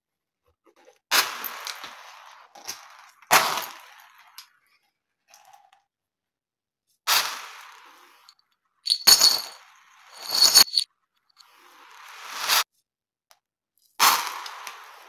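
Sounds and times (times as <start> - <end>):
beads clattering on hard floor: 3.3 - 4.0, 8.9 - 10.8.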